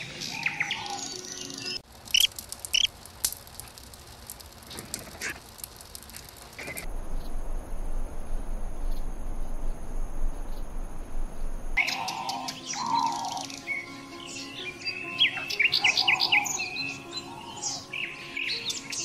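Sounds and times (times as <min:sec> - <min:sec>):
small birds chirping: 0:00.0 - 0:03.0, 0:04.0 - 0:19.0.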